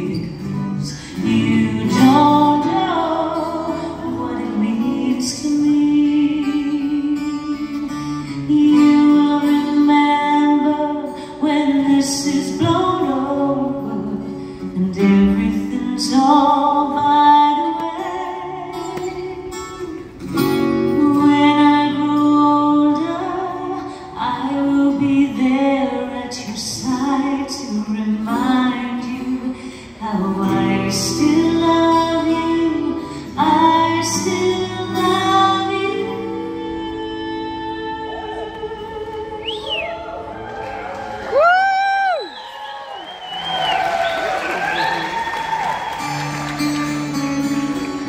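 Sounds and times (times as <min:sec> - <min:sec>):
strummed acoustic guitar: 0:00.0 - 0:39.1, 0:46.0 - 0:48.0
person singing: 0:00.0 - 0:40.3.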